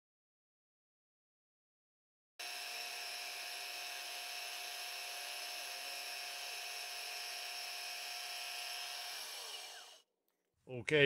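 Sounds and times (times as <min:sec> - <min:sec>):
milling machine whining: 0:02.4 - 0:10.0.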